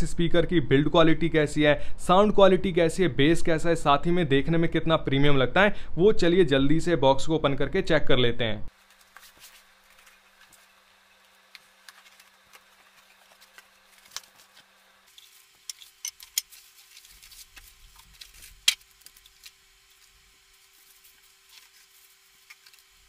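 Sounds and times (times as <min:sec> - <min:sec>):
cardboard and plastic rustling: 0:08.7 - 0:23.0
blade slitting packing tape: 0:11.8 - 0:23.0.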